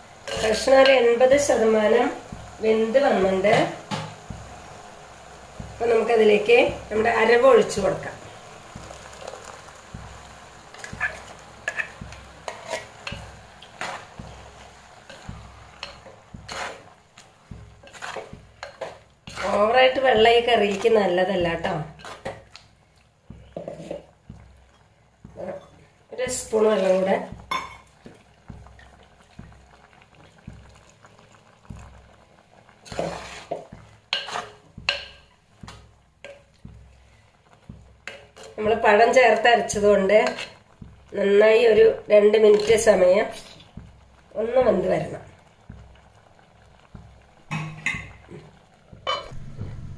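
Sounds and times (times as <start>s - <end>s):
spoon stirring thick paste: 5.5s - 49.3s
spoon scraping and knocking clay pot: 8.7s - 22.6s, 23.3s - 29.6s, 32.8s - 39.0s, 39.7s - 41.1s, 46.9s - 49.9s.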